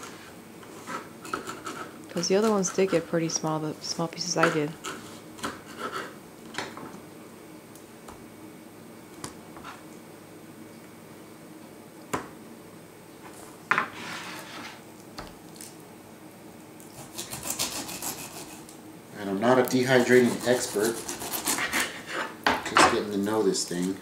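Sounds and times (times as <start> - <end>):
knife sawing through pineapple: 0.0 - 3.1, 4.8 - 6.2, 16.9 - 18.7, 19.7 - 22.4
faint steady hum: 0.0 - 24.0
short scrape: 13.8 - 14.8.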